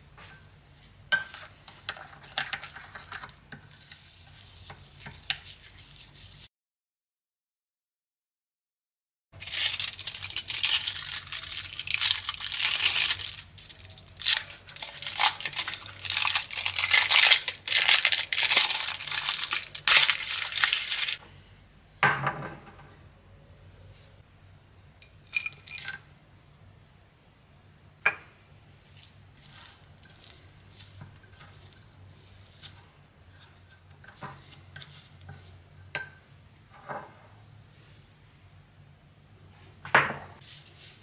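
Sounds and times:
foil wrapper crinkling and tearing: 9.4s - 21.2s.

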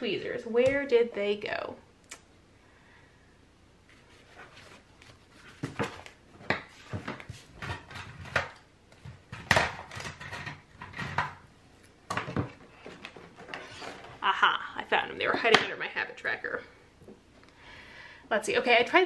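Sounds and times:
paper rustling: 3.9s - 8.4s.

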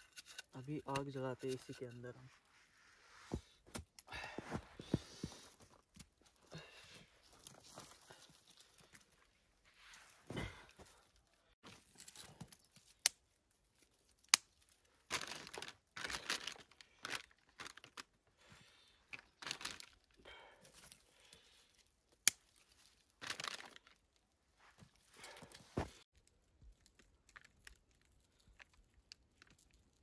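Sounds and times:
tinder crinkling and rustling: 7.1s - 18.2s, 19.0s - 30.0s
dry twigs snapping: 22.1s - 24.0s.

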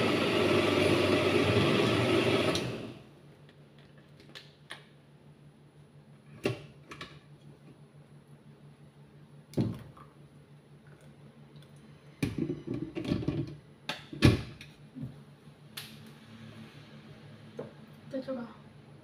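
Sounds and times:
blender running: 0.0s - 3.1s.

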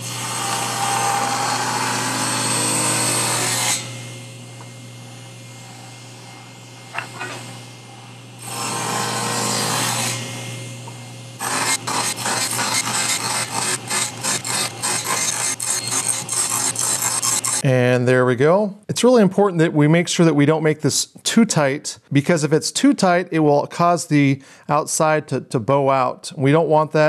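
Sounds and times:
saw blade cutting wood: 0.0s - 4.8s, 5.6s - 17.6s
table saw motor running: 0.0s - 17.6s.

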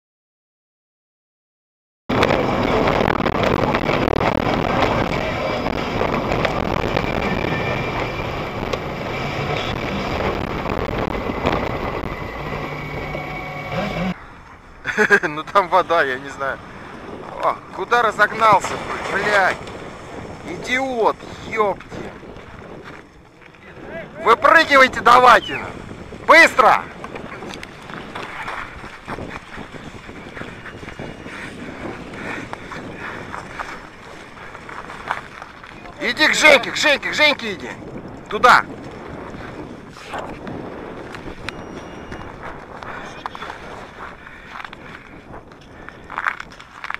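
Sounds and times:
low hum: 2.1s - 14.9s
wind buffeting microphone: 2.1s - 46.9s
footsteps crunching on snowy ice: 27.0s - 36.4s, 42.2s - 46.9s.

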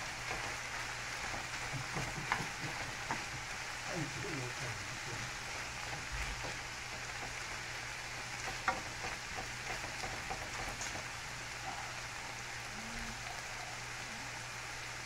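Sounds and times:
spatula scraping and tapping pan: 0.0s - 3.6s, 5.4s - 11.1s
sausage sizzling in a frying pan: 0.0s - 15.0s.

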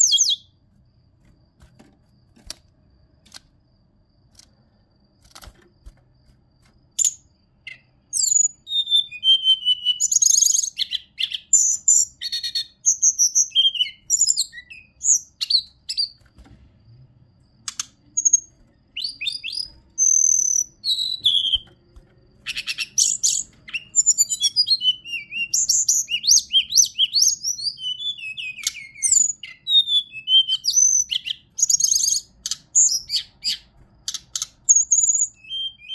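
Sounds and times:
bird singing whistled phrases: 0.0s - 0.5s, 7.0s - 16.2s, 18.2s - 21.7s, 22.5s - 33.7s, 34.7s - 35.9s.

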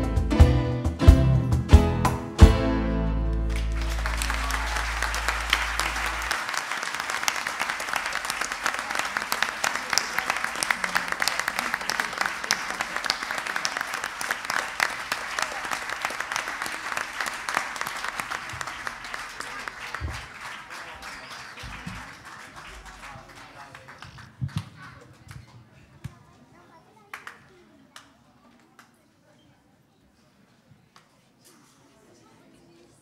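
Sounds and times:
audience applauding: 3.3s - 25.1s.

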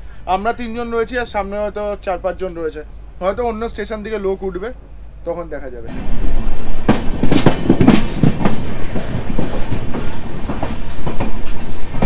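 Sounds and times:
train wheels clattering over joints: 5.9s - 12.0s.

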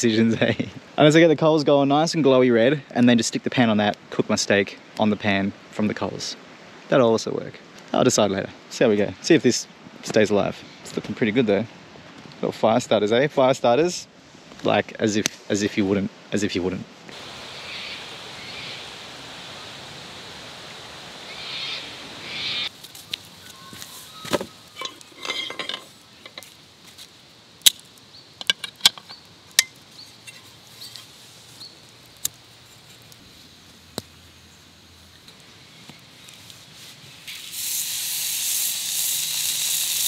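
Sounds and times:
metal pan clinking: 24.8s - 26.4s.

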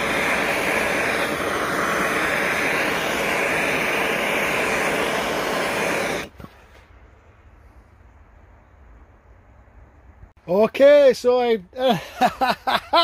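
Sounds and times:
gas torch flame rushing: 0.0s - 7.1s.

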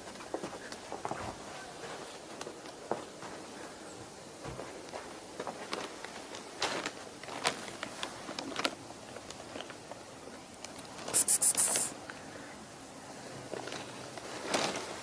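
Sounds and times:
loud hissing rustle: 10.7s - 12.2s.

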